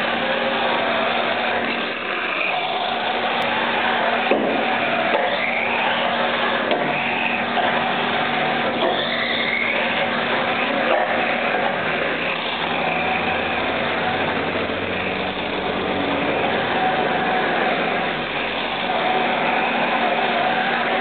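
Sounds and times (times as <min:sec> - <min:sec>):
electric motor whining: 0:00.0 - 0:21.0.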